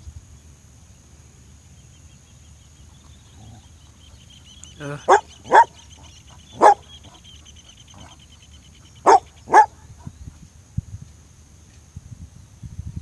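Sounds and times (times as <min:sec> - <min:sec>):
dog barking: 0:04.8 - 0:07.2, 0:08.0 - 0:08.2, 0:09.0 - 0:10.1.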